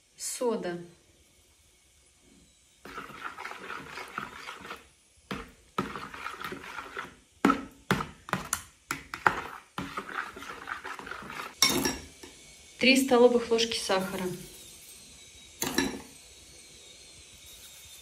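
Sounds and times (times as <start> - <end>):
spoon stirring in a bowl: 2.8 - 12.4
spoon clinking against bowl: 11.6 - 12.1, 15.6 - 16.1.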